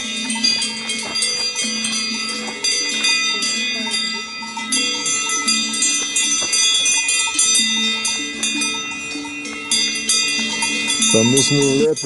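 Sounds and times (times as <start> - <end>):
cowbells clanging: 0.0 - 12.0.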